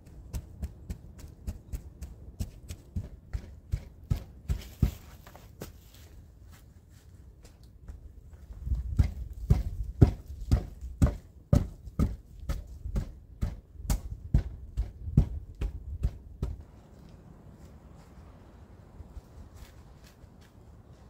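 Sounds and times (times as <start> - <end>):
heavy footsteps: 0.0 - 13.6.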